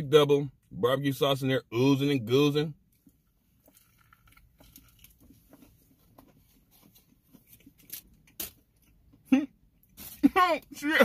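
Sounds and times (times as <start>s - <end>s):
chewing crunchy food: 2.9s - 9.2s.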